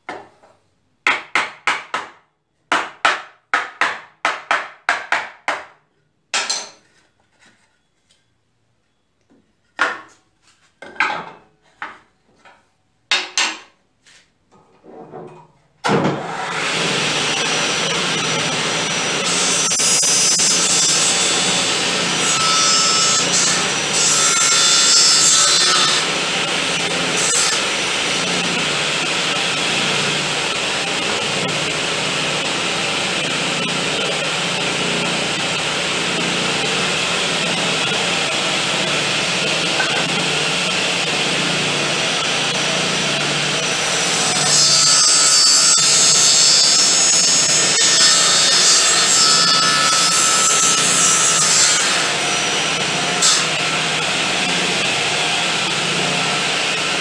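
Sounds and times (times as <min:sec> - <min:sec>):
table saw running: 0:16.1 - 0:57.0
saw blade cutting wood: 0:16.2 - 0:41.4, 0:42.2 - 0:56.9.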